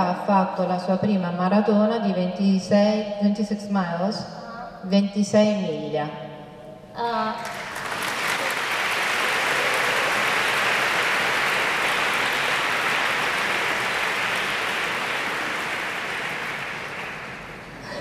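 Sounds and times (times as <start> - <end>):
large audience applauding: 7.4 - 18.0.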